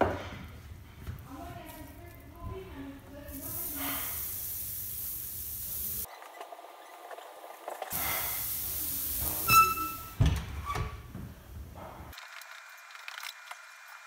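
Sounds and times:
burger patties sizzling on grill: 3.3s - 6.1s, 7.9s - 10.1s.

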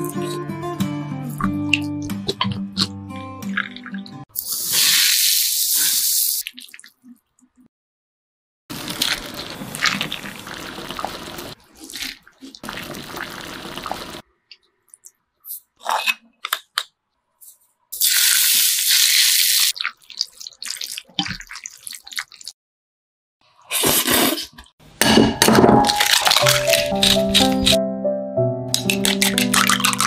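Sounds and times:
noodles squelching when mixed: 8.8s - 14.2s, 19.7s - 22.6s, 25.9s - 27.8s, 28.8s - 30.0s
water splashing and dripping: 8.9s - 14.2s, 19.7s - 22.6s, 28.7s - 30.0s
hot oil sizzling: 18.0s - 19.7s.

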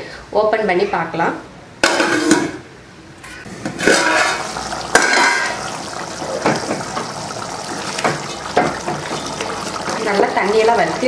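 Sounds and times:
thick gravy bubbling and spitting: 3.8s - 10.4s.

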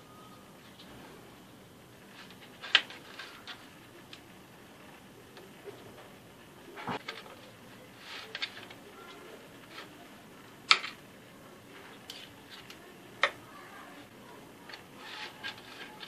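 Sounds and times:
spatula scraping on biscuit: 14.8s - 16.0s.

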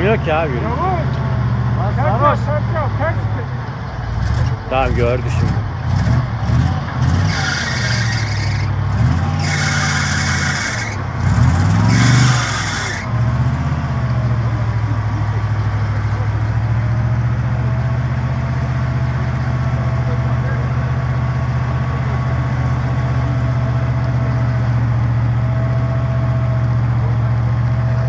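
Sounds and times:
vehicle engines under load: 0.0s - 28.0s.

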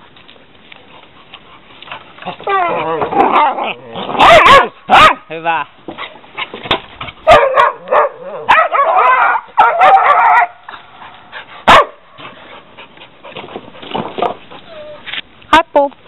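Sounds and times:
young dog barking and yipping: 2.2s - 5.3s, 6.0s - 12.6s.

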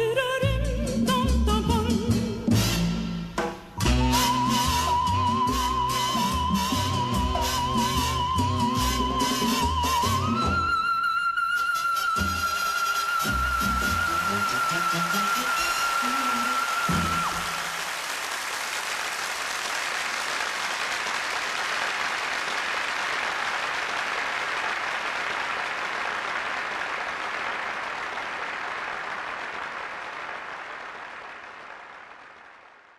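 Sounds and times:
music: 0.0s - 17.7s
audience applauding: 11.6s - 32.9s.

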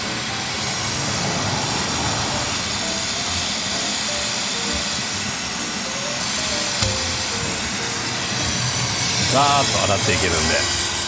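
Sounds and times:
pressurized spray hissing: 0.0s - 11.0s.

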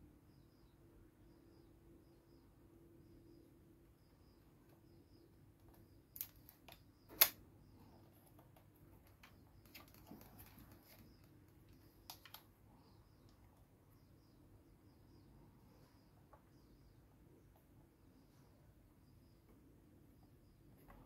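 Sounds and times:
toy belt buckle plastic clicks: 6.2s - 7.4s.

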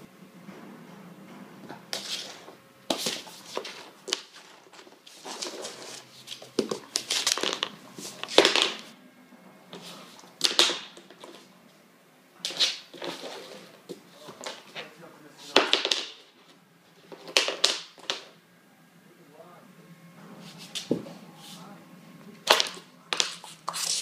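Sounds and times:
hair brush clattering on floor: 6.5s - 8.9s.

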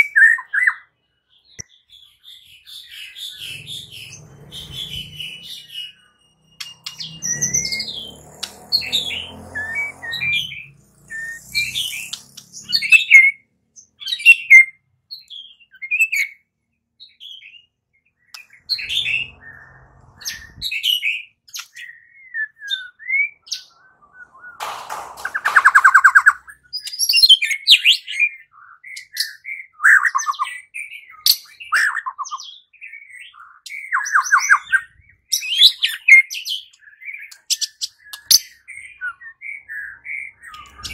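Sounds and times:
bird singing whistled phrases: 8.8s - 13.4s, 14.0s - 16.4s, 18.4s - 24.6s, 25.4s - 40.9s
bird rattling trill: 24.6s - 26.4s.

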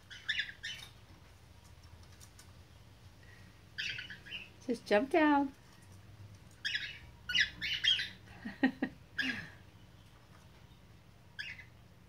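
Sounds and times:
cockatiel squawking: 6.6s - 8.2s, 11.4s - 11.7s.

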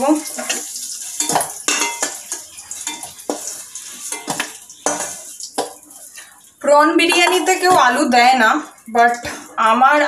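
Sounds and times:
oil sizzling: 0.0s - 10.0s
metal spoon scraping steel pan: 0.4s - 5.8s.

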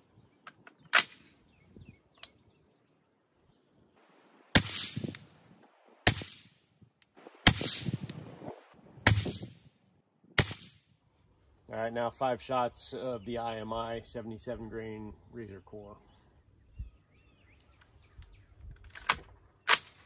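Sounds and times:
rifle shots with echo: 4.6s - 5.2s, 6.0s - 6.6s, 7.4s - 8.0s, 10.4s - 10.8s.

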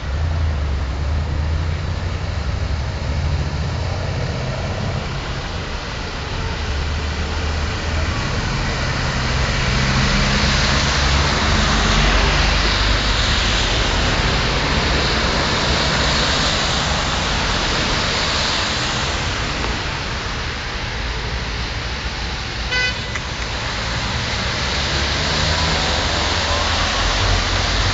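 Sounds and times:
car engines passing: 0.0s - 27.9s
water and tyre noise: 0.0s - 27.9s
car horn toot: 22.7s - 23.2s.

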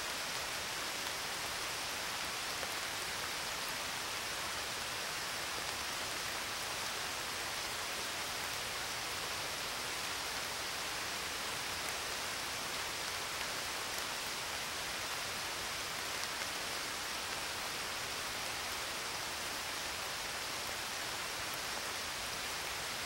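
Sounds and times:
steady rain-like hiss: 0.0s - 23.0s.

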